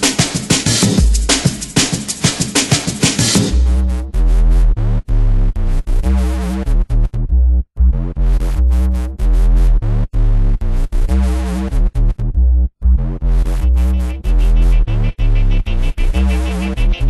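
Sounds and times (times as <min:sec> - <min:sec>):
synth bass notes: 0:03.5 - 0:17.0
layered synthesizer tones: 0:13.3 - 0:17.0.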